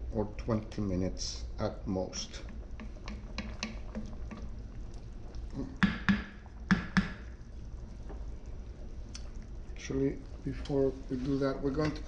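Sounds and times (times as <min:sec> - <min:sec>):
wooden spatula stirring stew: 0:02.2 - 0:12.0
spatula knocking against pot: 0:02.8 - 0:04.5, 0:05.8 - 0:07.3.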